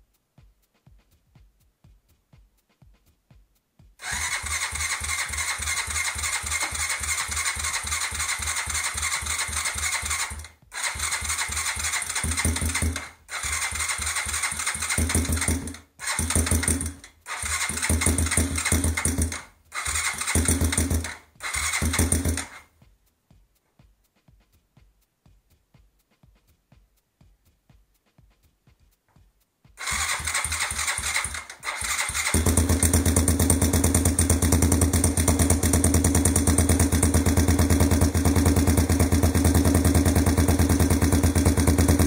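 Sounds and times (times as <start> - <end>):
electric starter cranking engine: 4.0 - 22.6, 29.8 - 42.0.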